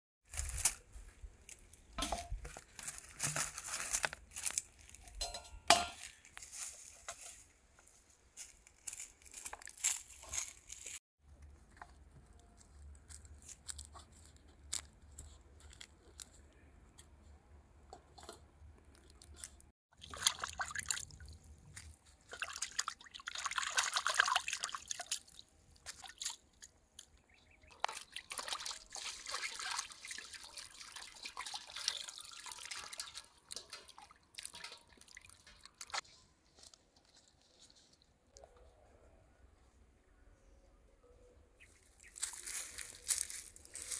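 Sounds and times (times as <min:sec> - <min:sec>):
water pouring and splashing: 0:19.0 - 0:27.1, 0:27.7 - 0:36.0.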